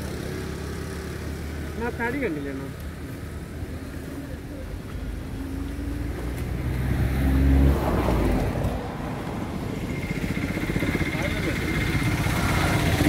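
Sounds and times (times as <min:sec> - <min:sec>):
car passing by: 0:05.3 - 0:11.3.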